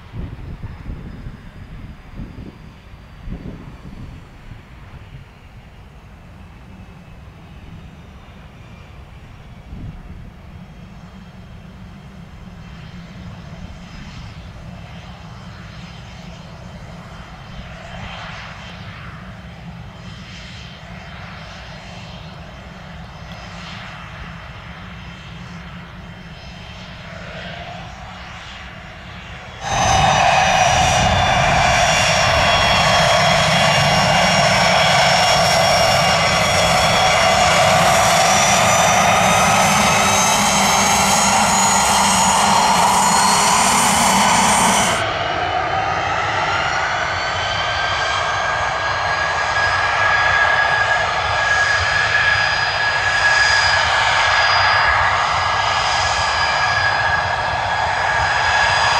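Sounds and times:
jet engines whining: 0:00.0 - 0:58.9.

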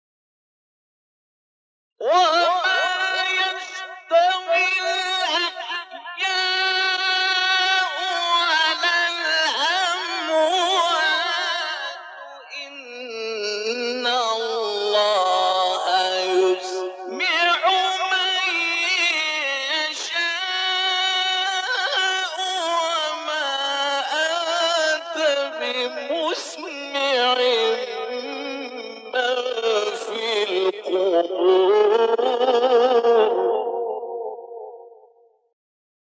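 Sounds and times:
man chanting melodically: 0:02.0 - 0:35.0.

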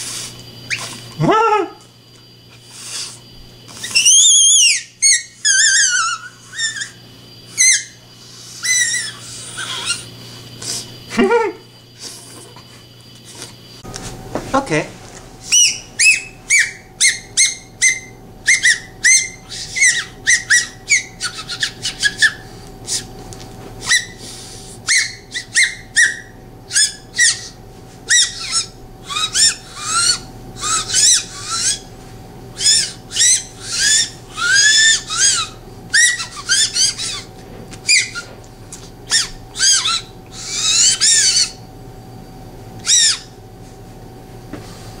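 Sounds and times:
bird whistle chirps and warbles: 0:03.8 - 0:08.0, 0:15.5 - 0:23.0, 0:32.6 - 0:37.3.

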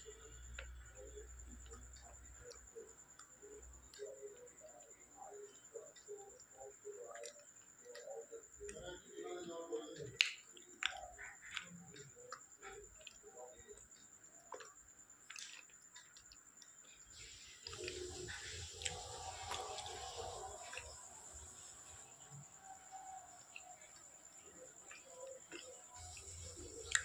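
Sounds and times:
person chewing with crunching: 0:10.2 - 0:12.0, 0:14.5 - 0:27.0.

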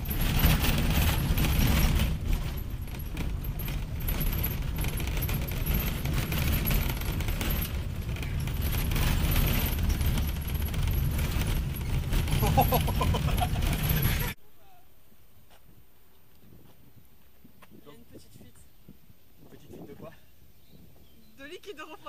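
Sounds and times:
car body rattling: 0:00.0 - 0:14.4
engine and road rumble: 0:00.0 - 0:14.4.

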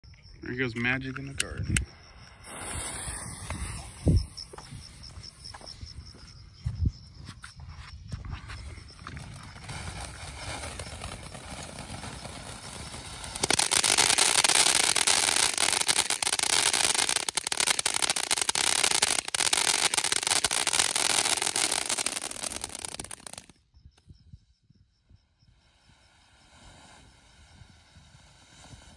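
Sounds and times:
firework fountain hissing: 0:01.9 - 0:05.0, 0:09.2 - 0:23.5, 0:25.4 - 0:28.9
dense crackling of sparks: 0:02.3 - 0:04.8, 0:09.1 - 0:23.6, 0:25.7 - 0:28.9.

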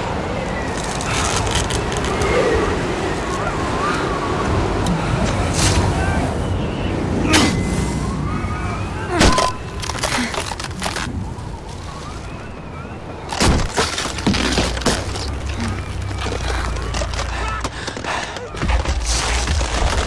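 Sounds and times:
low rumble of wind: 0:00.0 - 0:20.0
ice axes chopping into ice: 0:13.3 - 0:20.0.

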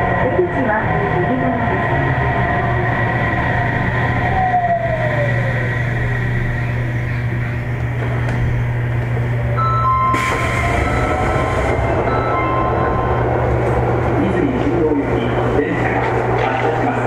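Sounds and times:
steady low hum: 0:00.0 - 0:17.0
steady higher tones: 0:08.6 - 0:17.0
train motors whining while braking: 0:10.1 - 0:13.9.

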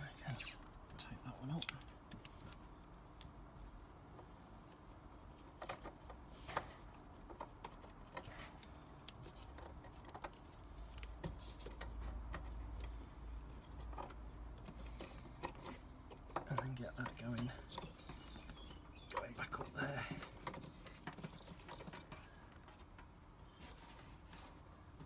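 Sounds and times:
clicks and rustles of wires: 0:00.0 - 0:25.0.

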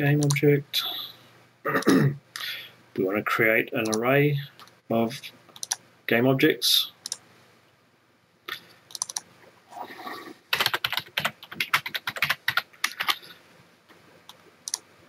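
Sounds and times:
keyboard typing: 0:00.2 - 0:00.4, 0:03.8 - 0:04.7, 0:05.5 - 0:05.8, 0:08.9 - 0:09.3, 0:10.5 - 0:13.3, 0:14.3 - 0:14.8.

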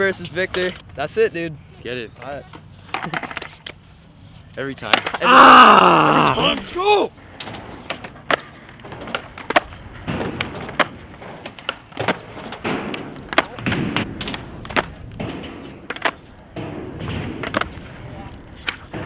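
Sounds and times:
skateboard clacking on concrete: 0:02.2 - 0:03.8, 0:04.7 - 0:05.2, 0:06.8 - 0:19.0.

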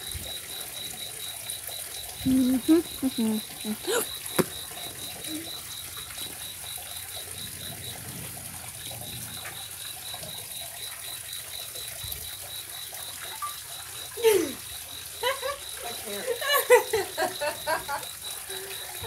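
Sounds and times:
cricket chirping: 0:00.0 - 0:19.0
faint water trickle: 0:00.0 - 0:19.0.

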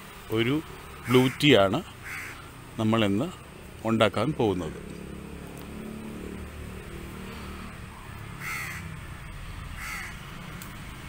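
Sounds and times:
crow cawing: 0:01.0 - 0:02.6, 0:08.4 - 0:09.0, 0:09.7 - 0:10.4.

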